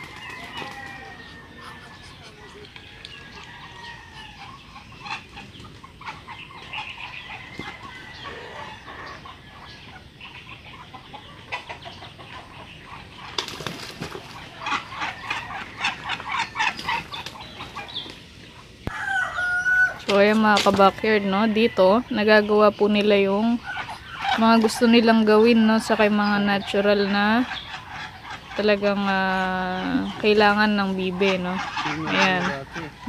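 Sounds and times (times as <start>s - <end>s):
ducks flapping wings: 0.0s - 1.1s, 13.1s - 18.4s
fowl calling: 0.0s - 13.4s, 14.3s - 33.0s.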